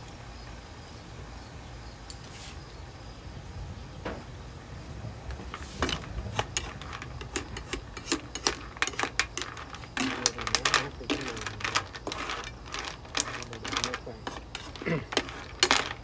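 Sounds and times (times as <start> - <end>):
spatula scraping a wok: 5.4 - 16.0.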